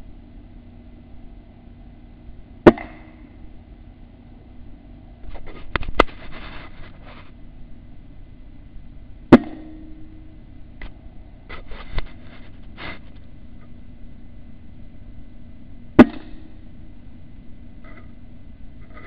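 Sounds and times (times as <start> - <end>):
rustling: 5.2 - 7.4, 11.5 - 13.4.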